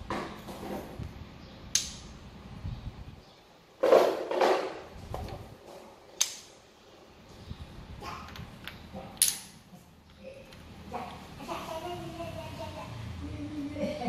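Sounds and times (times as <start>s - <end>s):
wooden blocks clattering on tile: 8.2s - 11.2s.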